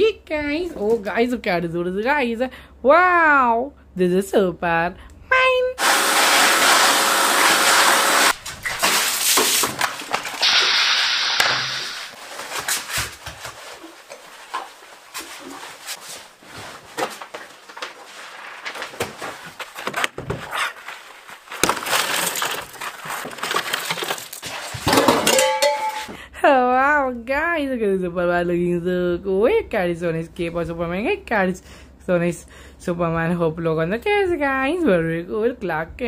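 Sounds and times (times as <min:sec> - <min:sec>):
water splash: 0:08.7 - 0:12.1
steady hiss: 0:10.4 - 0:12.2
knocks and clatters: 0:21.6 - 0:26.2.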